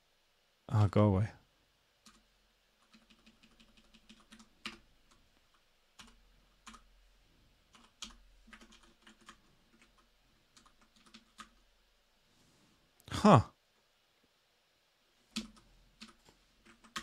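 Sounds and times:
typing on keyboard: 2.0 - 2.2, 2.8 - 6.9, 7.7 - 11.6, 15.3 - 17.0.

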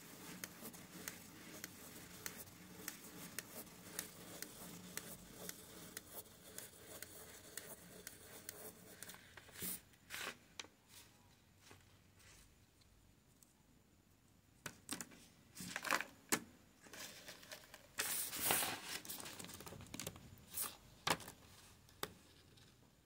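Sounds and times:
pen scratching on paper: 0.0 - 9.8
paper rustle: 16.8 - 20.8.

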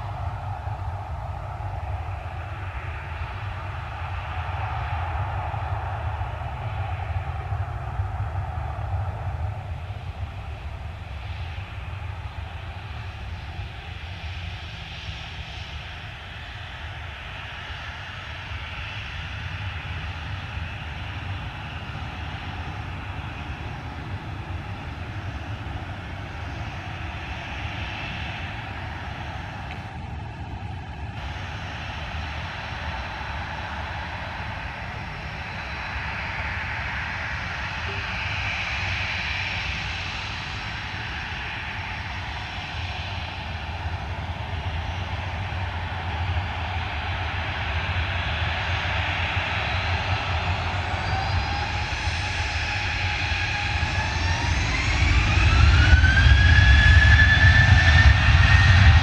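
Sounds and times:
jet engines at takeoff: 0.0 - 59.0.

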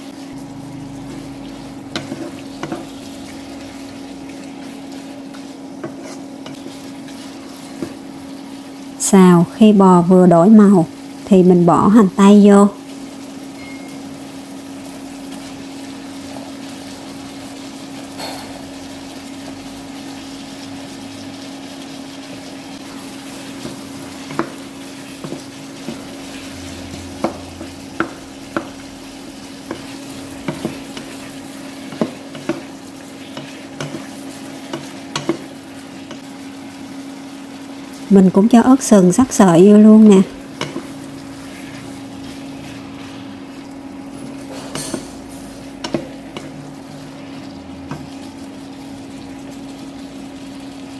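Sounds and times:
beef sizzling in a hot pan: 0.0 - 50.9
wooden spatula knocking pan: 23.6 - 24.6, 31.8 - 32.7, 45.8 - 46.6.

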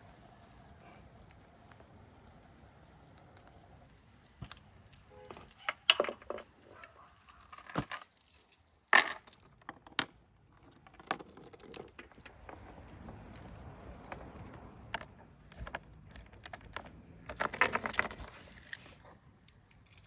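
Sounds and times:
steel chain clinking and rattling: 4.4 - 20.0.

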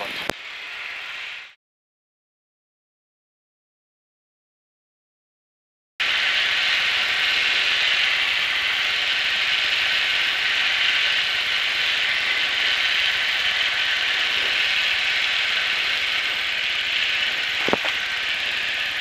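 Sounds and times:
aircraft engine and airflow in cabin: 0.0 - 1.4, 6.0 - 19.0.

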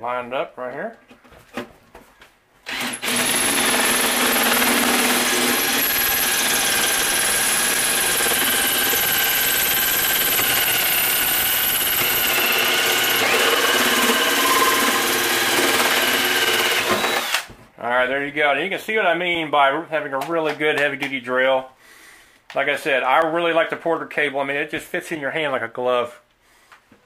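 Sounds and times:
drill hole saw cutting metal: 2.7 - 17.5.

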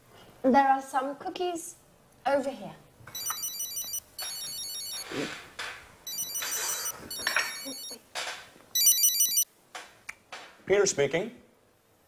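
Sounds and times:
mobile phone ringtone: 3.2 - 5.1, 6.1 - 8.0, 8.8 - 9.4.

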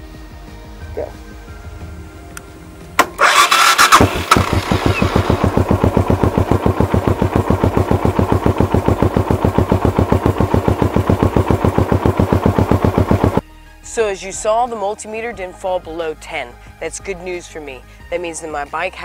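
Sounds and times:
electric starter cranking: 3.0 - 13.4
motorcycle engine idling: 3.3 - 13.4.

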